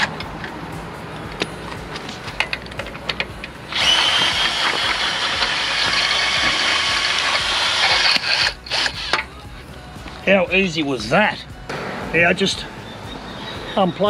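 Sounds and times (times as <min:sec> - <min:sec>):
cordless drill whining: 0:03.7 - 0:09.3.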